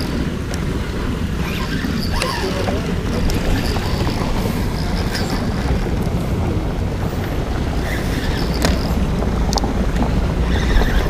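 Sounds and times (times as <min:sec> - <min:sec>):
wind buffeting microphone: 0:00.0 - 0:11.0
faint clicks: 0:07.2 - 0:11.0.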